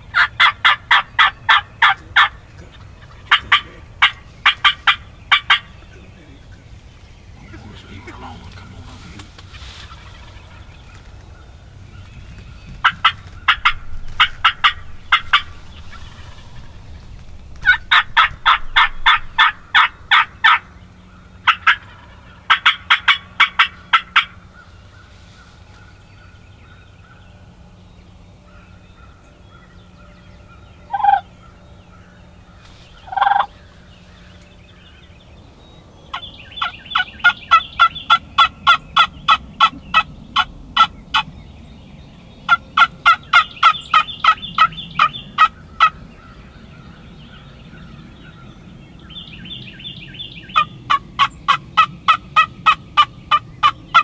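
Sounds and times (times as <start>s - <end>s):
turkeys gobbling: 0.0s - 12.0s, 12.7s - 26.0s, 30.6s - 34.4s, 36.1s - 41.3s, 42.4s - 46.4s, 50.0s - 54.0s.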